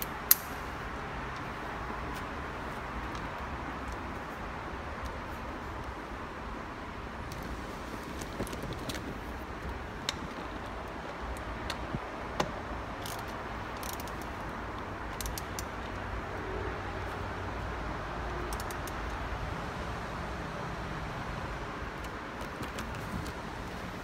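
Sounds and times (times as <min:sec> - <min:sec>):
socket ratchet clicking: 0:00.0 - 0:00.8, 0:11.2 - 0:16.0, 0:18.5 - 0:19.2.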